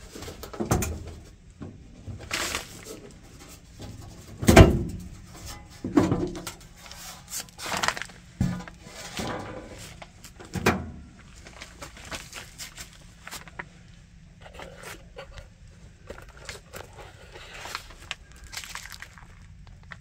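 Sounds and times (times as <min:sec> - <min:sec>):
metal panel knocking down: 0:04.4 - 0:05.1
clicks and scrapes of handling: 0:14.4 - 0:20.0.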